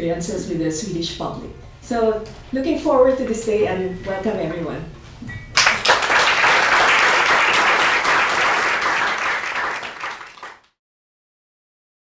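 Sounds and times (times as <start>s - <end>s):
audience applauding: 5.6s - 10.7s.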